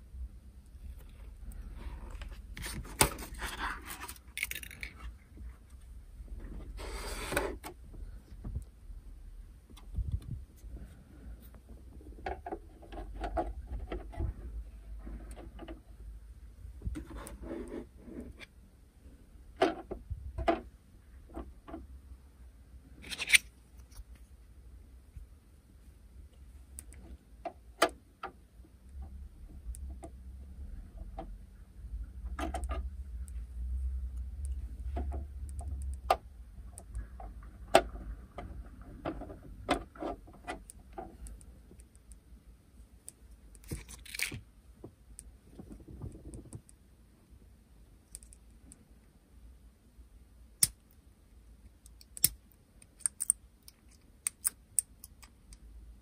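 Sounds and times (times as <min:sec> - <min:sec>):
plastic model parts handled: 0:01.0 - 0:05.2, 0:23.0 - 0:24.2, 0:43.5 - 0:44.5, 0:51.9 - 0:55.6.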